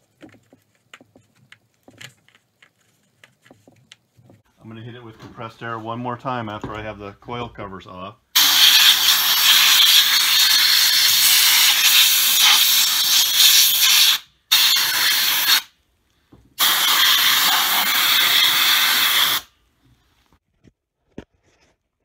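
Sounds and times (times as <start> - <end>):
air blow gun hissing: 8.4 - 15.7, 16.6 - 19.5.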